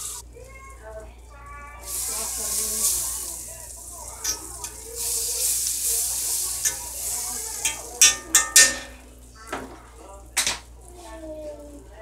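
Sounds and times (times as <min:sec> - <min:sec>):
butter sizzling in skillet: 0:00.0 - 0:11.6
fork clicking against iron pan: 0:04.2 - 0:04.8, 0:06.6 - 0:07.0, 0:07.6 - 0:09.0.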